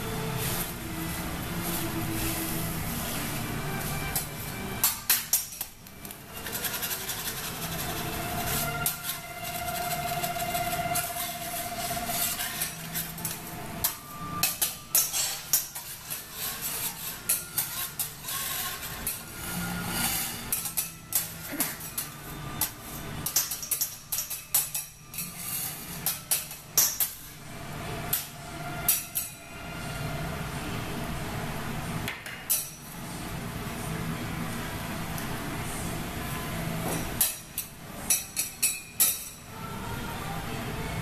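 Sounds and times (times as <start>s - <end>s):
metal spatulas scraping on griddle: 0.0s - 30.1s, 36.8s - 39.4s.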